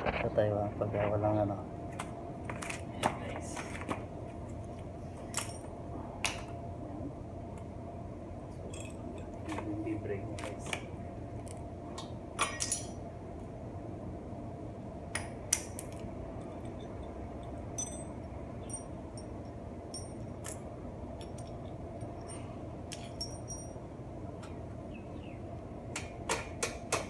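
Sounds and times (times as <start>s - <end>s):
steady low hum: 0.0s - 27.0s
metal bolts clinking on concrete: 5.3s - 5.7s, 8.7s - 9.6s, 12.4s - 13.0s, 15.6s - 23.8s.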